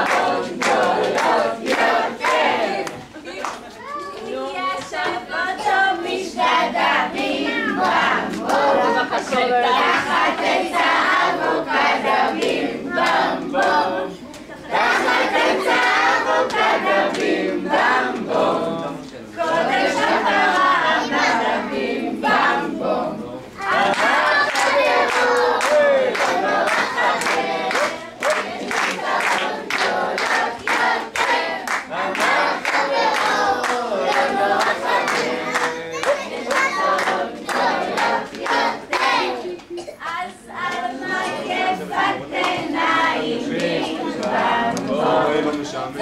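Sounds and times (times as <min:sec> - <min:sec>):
children singing: 0:00.0 - 0:03.1, 0:04.6 - 0:46.0
hand claps: 0:00.0 - 0:03.6, 0:23.8 - 0:40.9.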